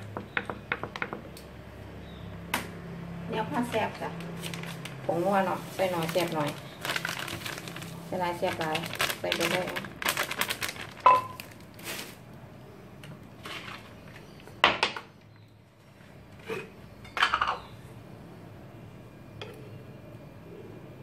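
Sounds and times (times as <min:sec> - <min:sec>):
plastic bag crinkling: 0:03.8 - 0:12.4.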